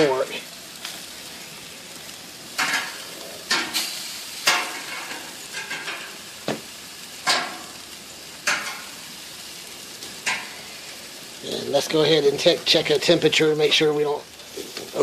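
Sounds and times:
food sizzling on grill: 0:00.0 - 0:15.0
metal tongs clinking on grill rack: 0:02.6 - 0:06.2, 0:07.2 - 0:07.8, 0:08.4 - 0:09.0, 0:10.1 - 0:10.6.

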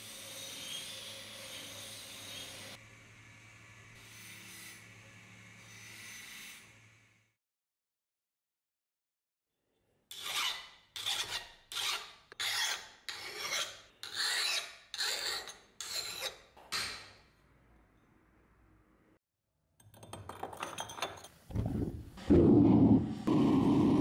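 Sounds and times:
file rasping on axe head: 0:10.1 - 0:16.5.

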